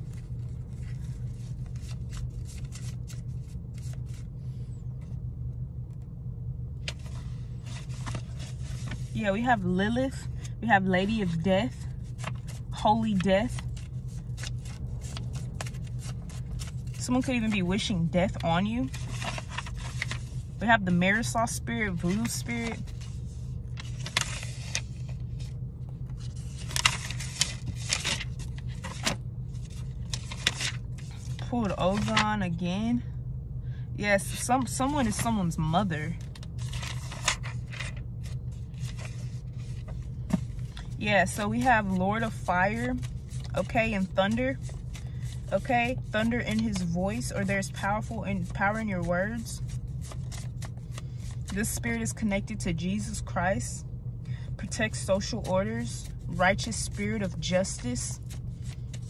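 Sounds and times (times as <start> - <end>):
cards rustling and clicking: 0.0 - 4.2, 13.4 - 17.6, 18.3 - 20.4, 26.1 - 32.3, 36.2 - 43.5, 49.6 - 51.8, 58.2 - 59.0
car cabin hum: 6.8 - 24.2, 25.0 - 33.0, 34.0 - 49.5.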